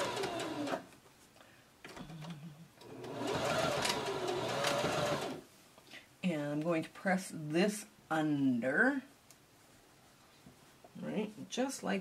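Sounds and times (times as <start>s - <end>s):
sewing machine stitching: 0.0s - 0.8s, 2.8s - 5.4s.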